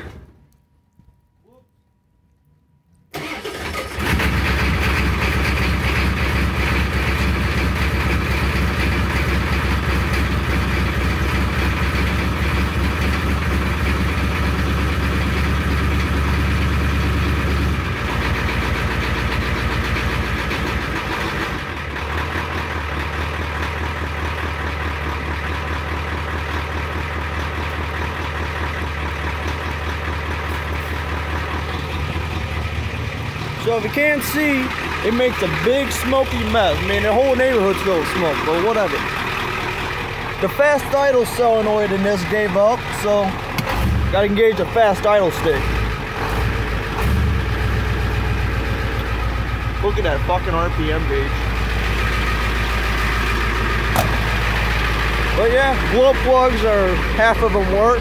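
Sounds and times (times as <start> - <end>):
diesel engine starting and idling: 3.1 - 58.0.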